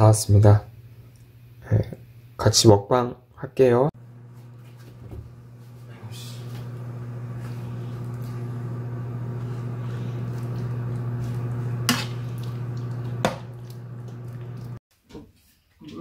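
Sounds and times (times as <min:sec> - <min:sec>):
low electrical hum: 0:03.6 - 0:14.8.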